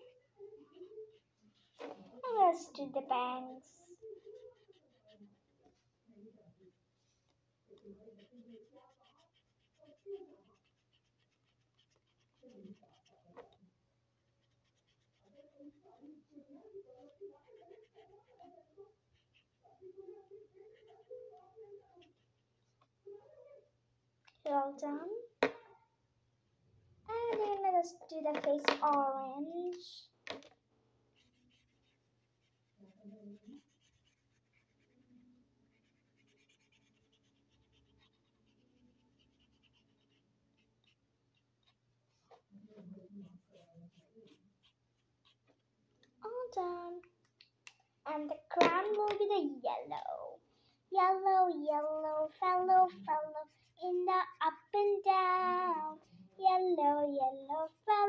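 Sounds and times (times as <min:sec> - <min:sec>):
marker scratching on paper: 0:07.8 - 0:13.6, 0:14.4 - 0:16.1, 0:27.1 - 0:29.9, 0:31.2 - 0:41.0, 0:42.3 - 0:45.4, 0:48.1 - 0:50.1, 0:51.0 - 0:56.8.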